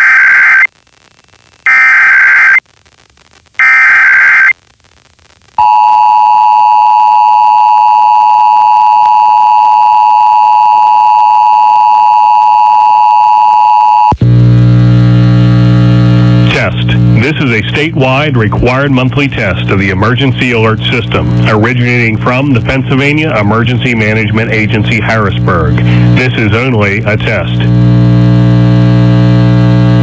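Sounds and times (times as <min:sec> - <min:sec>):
data tone bursts: 0:01.7 - 0:02.6, 0:03.6 - 0:04.5
low buzzing: 0:14.2 - 0:23.9, 0:27.1 - 0:30.0.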